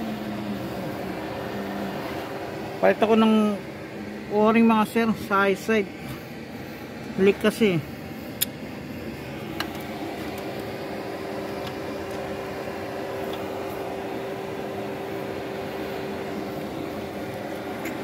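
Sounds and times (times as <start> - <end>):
steady machine hum: 0.0 - 18.0.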